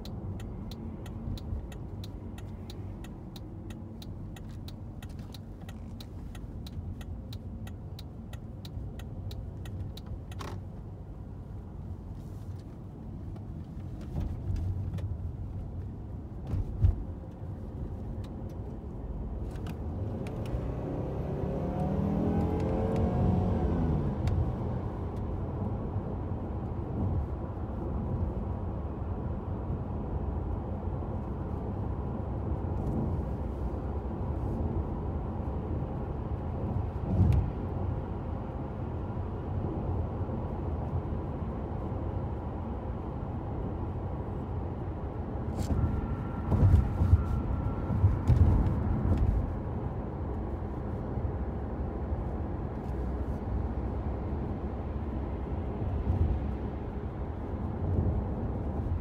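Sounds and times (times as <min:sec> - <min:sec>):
road rumble inside car: 0:00.0 - 0:59.0
car engine accelerating: 0:19.3 - 0:26.2.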